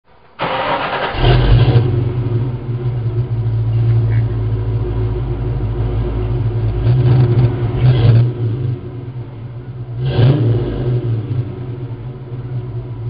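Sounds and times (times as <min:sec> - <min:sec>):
engine idle rumble: 0:00.1 - 0:13.0
engine cranking: 0:00.4 - 0:02.2.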